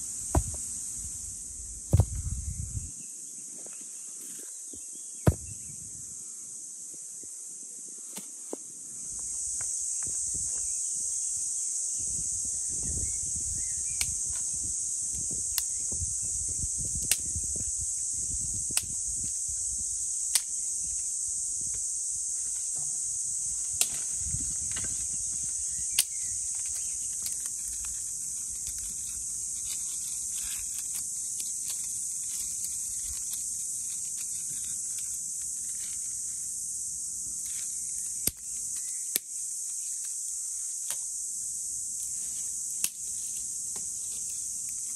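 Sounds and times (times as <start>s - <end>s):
insect chorus: 0.0s - 44.9s
stone knocking on stone: 0.3s - 0.6s.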